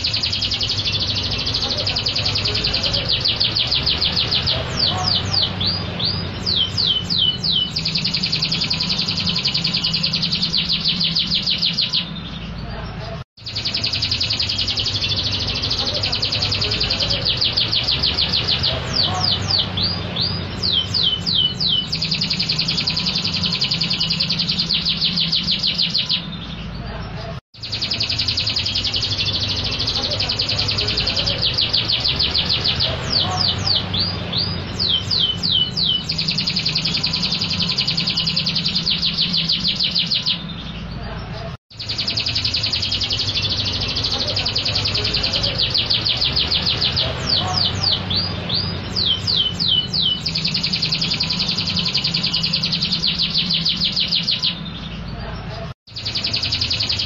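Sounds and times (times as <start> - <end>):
canary singing: 0.0 - 57.0.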